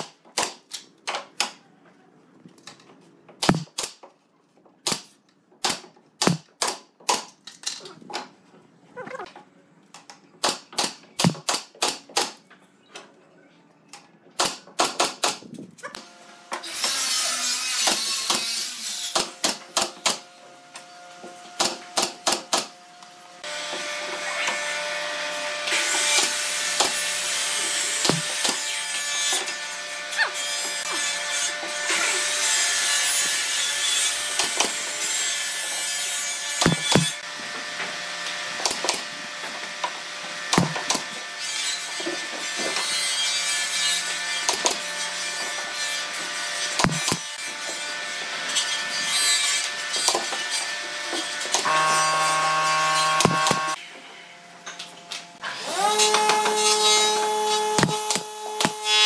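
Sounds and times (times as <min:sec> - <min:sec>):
power tool running: 0:25.7 - 0:28.6, 0:36.6 - 0:41.2, 0:46.8 - 0:47.4, 0:51.5 - 0:53.8, 0:55.4 - 0:59.0
taps and knocks on wood: 0:46.8 - 0:47.2.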